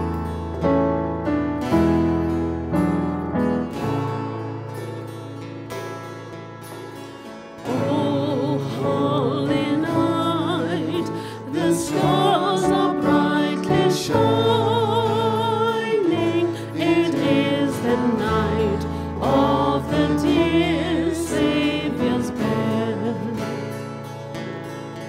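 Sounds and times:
strummed acoustic guitars: 0:00.0 - 0:25.0
voices singing: 0:07.7 - 0:23.6.

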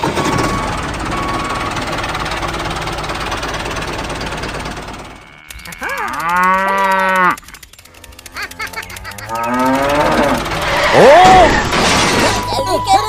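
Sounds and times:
cow mooing: 0:05.1 - 0:11.6.

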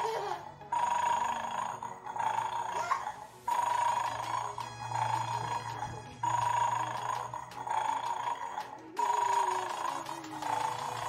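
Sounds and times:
electronic ringtone tune: 0:00.6 - 0:11.0.

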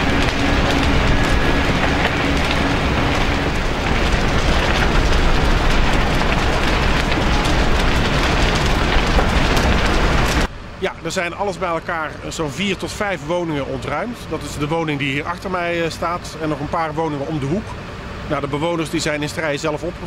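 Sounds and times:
low rumble: 0:00.0 - 0:14.6
steady hum: 0:00.0 - 0:19.6
fire roaring and crackling: 0:00.0 - 0:20.0.

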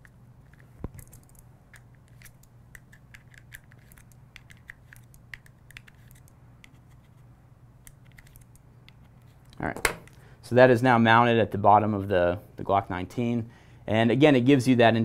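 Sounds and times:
small clicks and scratches: 0:00.0 - 0:09.6
low steady hum: 0:00.0 - 0:15.0.

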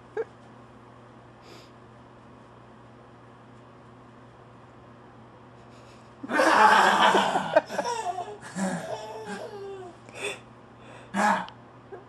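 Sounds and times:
people laughing: 0:06.3 - 0:08.9.

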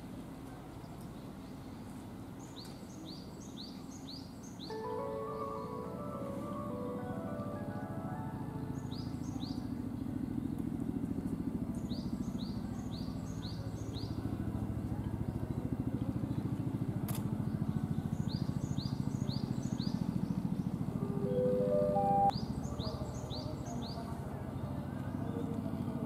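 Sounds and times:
bird chirping: 0:18.4 - 0:23.8.

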